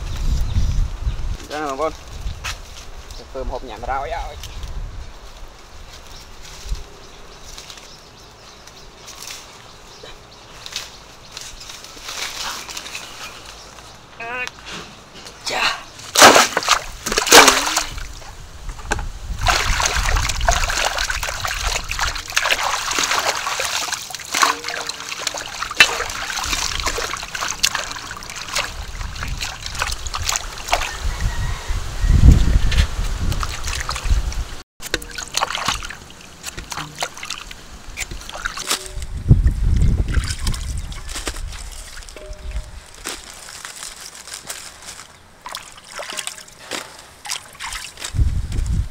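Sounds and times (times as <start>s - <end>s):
water splashing in metal basin: 16.1s - 18.2s, 19.4s - 31.0s, 33.4s - 34.1s, 34.8s - 39.0s, 45.4s - 48.0s
water gushing into basin: 19.4s - 31.0s.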